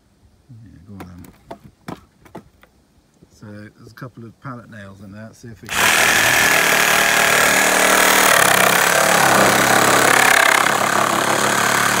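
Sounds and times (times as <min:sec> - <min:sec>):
reciprocating saw cutting wood: 0:05.7 - 0:12.0.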